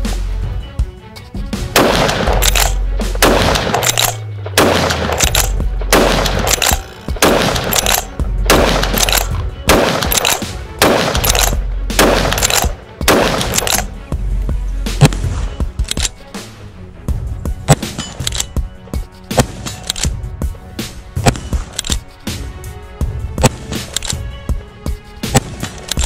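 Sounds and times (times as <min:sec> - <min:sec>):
background music: 0:00.0 - 0:26.0
rifle shots: 0:01.7 - 0:13.9, 0:15.0 - 0:16.1, 0:17.7 - 0:18.5, 0:19.3 - 0:20.1, 0:21.2 - 0:22.0, 0:25.2 - 0:26.0.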